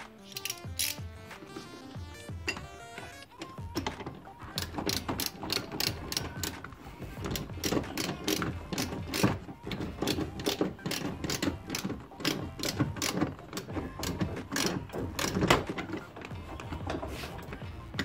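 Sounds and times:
socket ratchet clicking: 0.2s - 1.1s, 3.4s - 15.7s.

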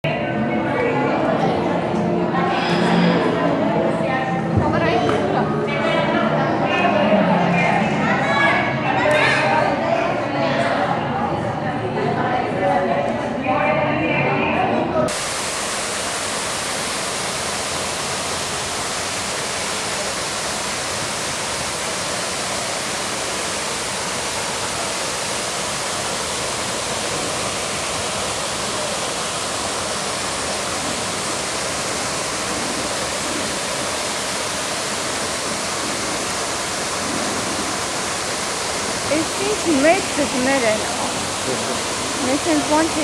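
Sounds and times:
waterfall rushing: 15.1s - 43.0s.

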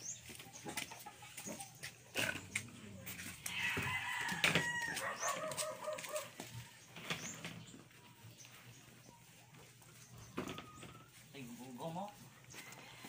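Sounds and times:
rooster crowing: 3.4s - 6.1s.

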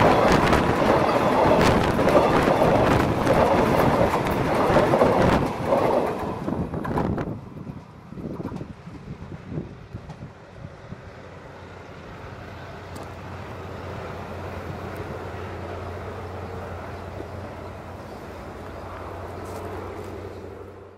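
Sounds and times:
distant engine drone: 8.7s - 20.9s.

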